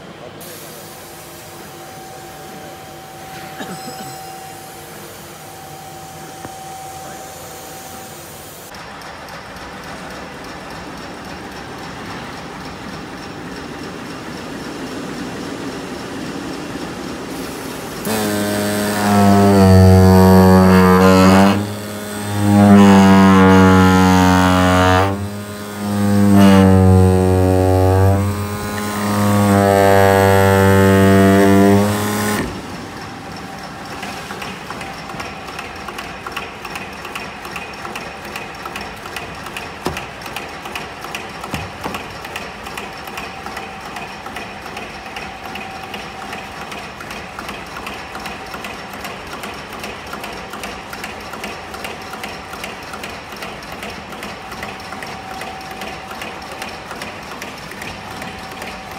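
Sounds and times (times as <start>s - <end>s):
machine hum with whine: 1.1s - 39.2s
fast mechanical clicking: 30.2s - 58.9s.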